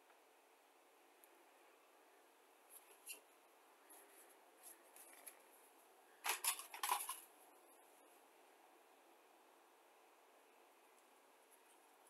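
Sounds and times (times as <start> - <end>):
clicks and rattles: 6.2 - 7.3.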